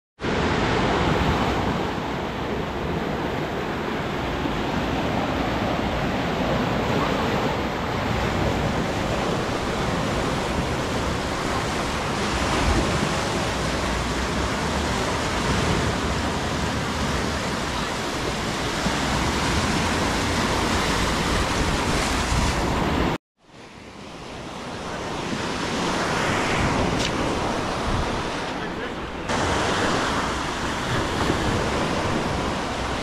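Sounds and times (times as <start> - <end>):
waves washing over rocks and sand: 0.2 - 33.0.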